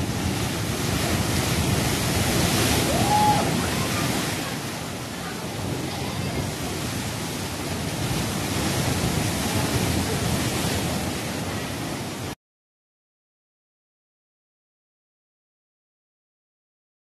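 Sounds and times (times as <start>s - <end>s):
waves crashing against rocks: 0.0s - 12.4s.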